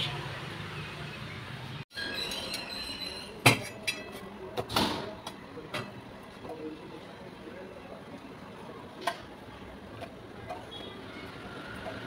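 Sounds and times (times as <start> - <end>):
kitchen utensils knocking and clinking: 1.9 - 4.8.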